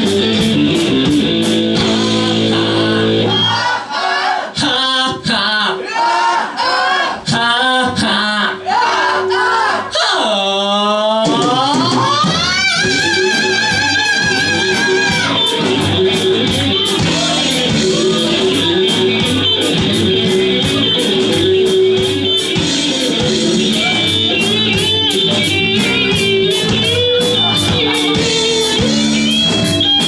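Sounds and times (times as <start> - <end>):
live hard rock band: 0.0 - 3.8, 11.2 - 30.0.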